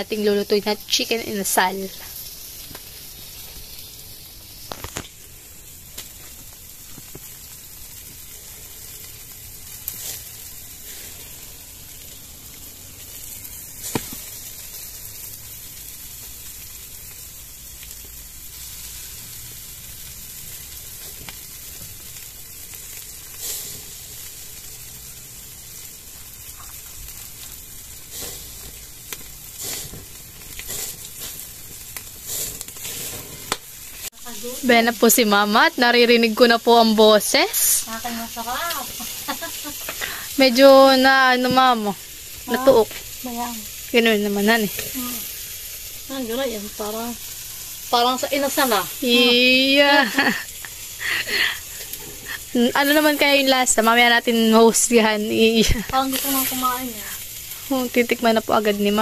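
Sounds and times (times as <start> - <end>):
chicken sizzling on a grill: 0.0 - 59.0
pops and crackles: 1.9 - 8.3, 13.2 - 14.8, 21.0 - 22.0, 26.1 - 27.6, 28.2 - 34.2, 37.4 - 40.2, 55.6 - 57.3.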